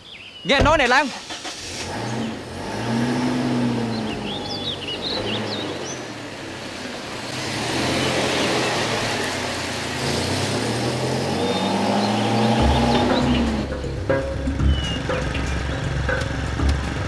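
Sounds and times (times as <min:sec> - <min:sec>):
car engine running: 0:00.6 - 0:17.0.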